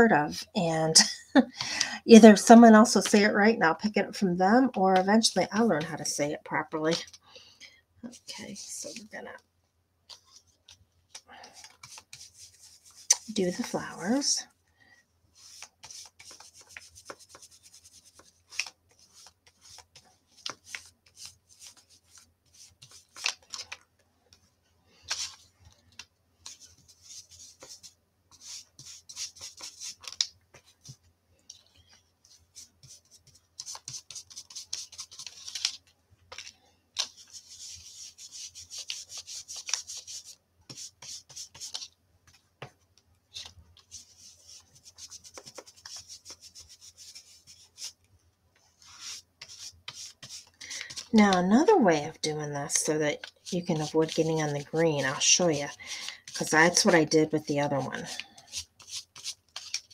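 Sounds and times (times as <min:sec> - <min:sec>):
brush scratching on cardstock: 0:11.6 - 0:13.6, 0:15.4 - 0:23.6, 0:26.4 - 0:31.0, 0:32.3 - 0:41.9, 0:43.4 - 0:48.0, 0:48.7 - 0:51.4, 0:52.7 - 0:59.9.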